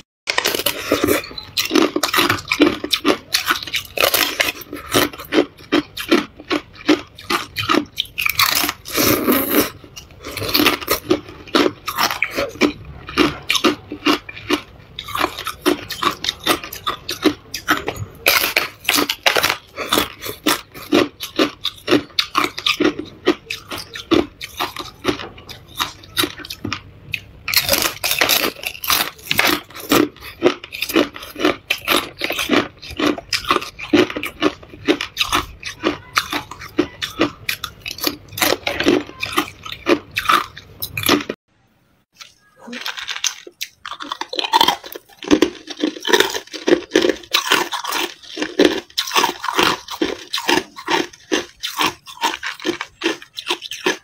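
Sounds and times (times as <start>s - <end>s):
ice crunching while chewed: 0.3s - 41.4s, 42.2s - 54.0s.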